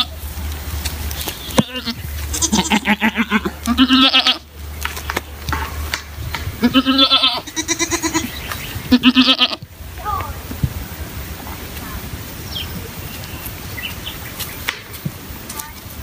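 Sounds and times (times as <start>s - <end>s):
goats bleating: 1.3s - 4.5s, 6.6s - 9.7s.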